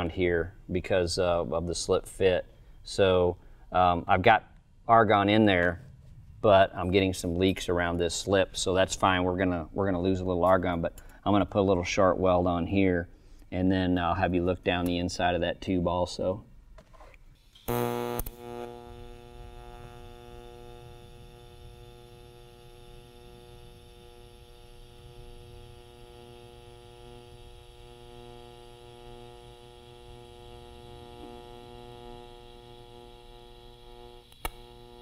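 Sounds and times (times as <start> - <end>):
welding arc buzzing: 17.4 - 35.0
sharp pop of welding arc: 17.6 - 28.0, 33.8 - 34.9
welding arc striking burst: 17.6 - 35.0.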